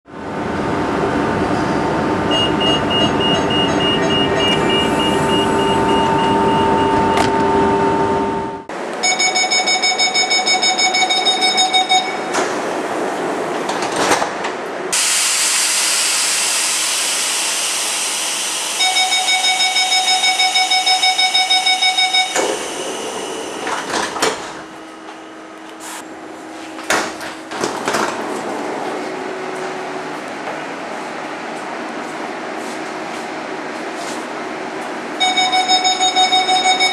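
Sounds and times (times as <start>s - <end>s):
train running whine: 0.1s - 26.7s
door warning beeps: 2.3s - 7.9s, 9.0s - 12.4s, 18.8s - 24.8s, 35.2s - 36.9s
train doors knocking shut: 12.3s - 12.8s
loud hiss: 15.0s - 18.8s.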